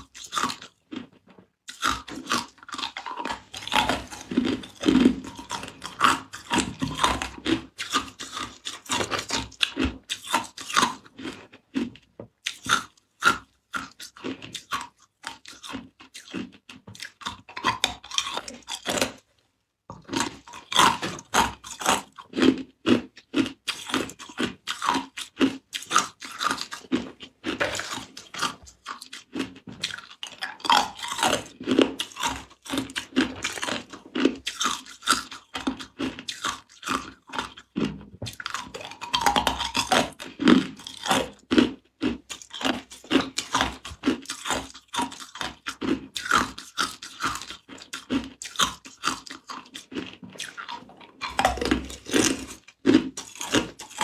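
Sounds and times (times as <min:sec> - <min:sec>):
ice cubes crunched between teeth: 0:20.1 - 0:54.0.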